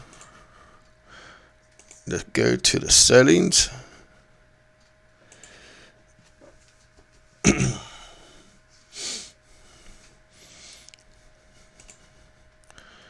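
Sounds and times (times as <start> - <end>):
person sneezing: 7.5 - 8.2
quiet breath: 8.0 - 13.0.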